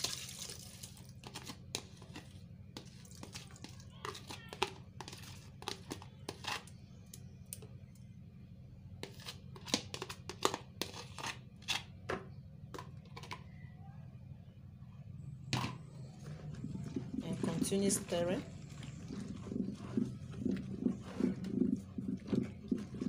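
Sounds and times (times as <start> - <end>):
liquid pouring: 0.0 - 1.2
steady low hum: 0.7 - 23.0.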